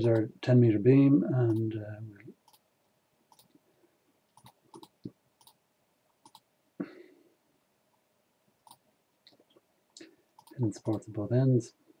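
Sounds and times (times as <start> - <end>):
computer mouse clicks: 1.5 - 1.7, 2.4 - 2.6, 3.3 - 3.6, 4.3 - 5.6, 6.2 - 6.5, 8.6 - 9.4, 10.4 - 11.1.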